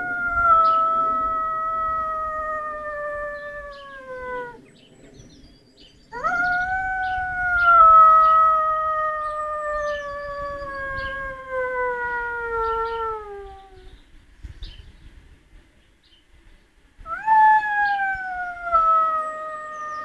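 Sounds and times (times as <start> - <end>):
dog howling: 0.0 - 4.7, 6.1 - 13.9, 17.1 - 20.0.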